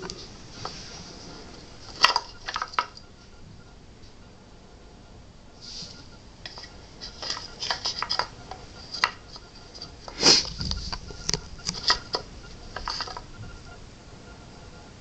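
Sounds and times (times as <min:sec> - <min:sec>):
wooden cubes knocking and clicking: 0:01.9 - 0:03.0, 0:06.5 - 0:13.3.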